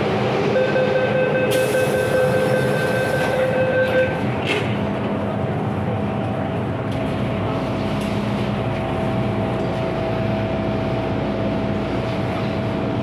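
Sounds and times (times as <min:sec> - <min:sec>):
rail rumble: 0:00.0 - 0:13.0.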